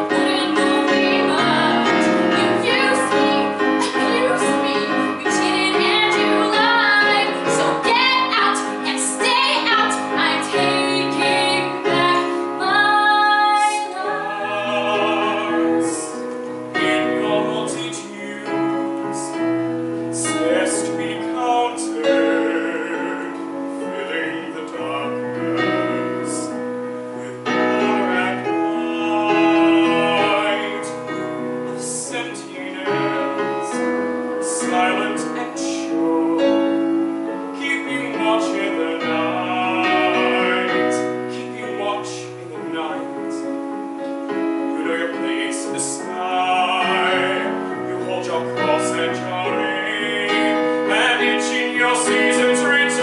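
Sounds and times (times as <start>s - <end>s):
woman singing: 0.0s - 16.2s
piano accompaniment: 0.0s - 53.0s.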